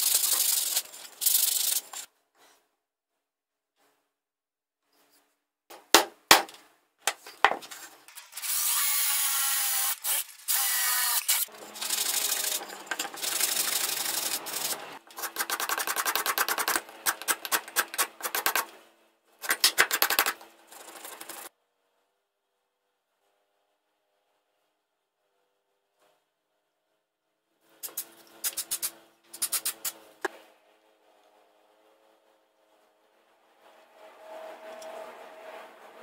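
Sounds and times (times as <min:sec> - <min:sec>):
mallet striking hand punch: 0:05.8 - 0:06.5.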